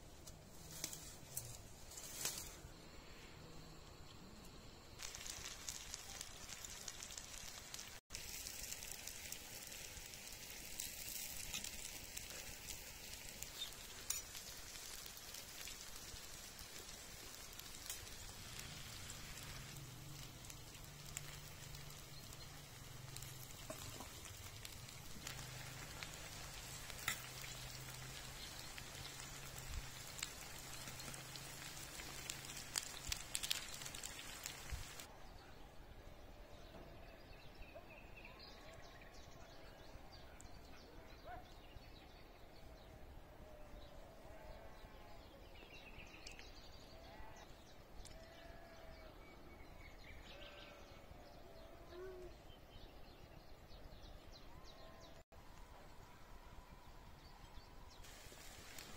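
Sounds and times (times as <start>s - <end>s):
food sizzling on a griddle: 4.8s - 35.1s, 57.9s - 58.9s.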